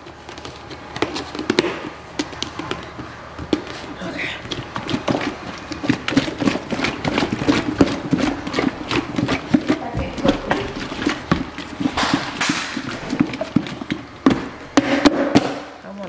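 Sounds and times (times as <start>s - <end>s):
liquid sloshing: 4.3s - 14.1s
meat knocking against plastic: 4.4s - 15.7s.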